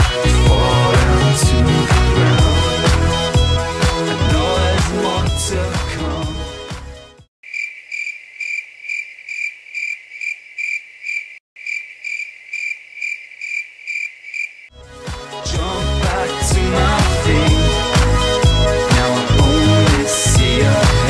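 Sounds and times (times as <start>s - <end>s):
pop music: 0.0s - 7.2s, 14.8s - 21.0s
cricket chirping: 7.4s - 14.7s.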